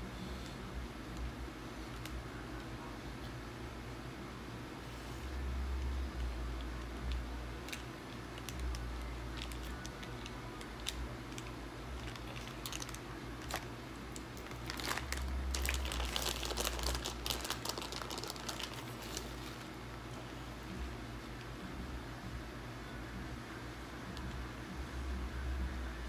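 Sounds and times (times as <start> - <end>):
chip bag crinkling: 7.6 - 19.8
sauce packet crinkling: 8.4 - 13.7, 14.4 - 19.7.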